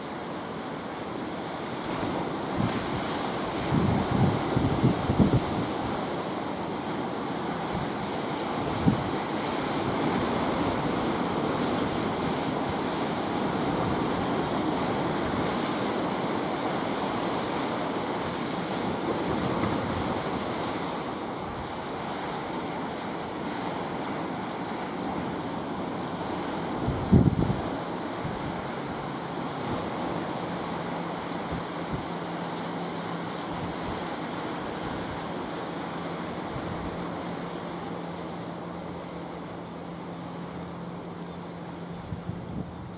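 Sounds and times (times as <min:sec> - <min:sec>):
surf breaking on rocky shore: 0:00.0 - 0:42.9
wind on microphone: 0:01.8 - 0:06.2, 0:07.6 - 0:16.7, 0:26.3 - 0:30.7, 0:41.9 - 0:42.9.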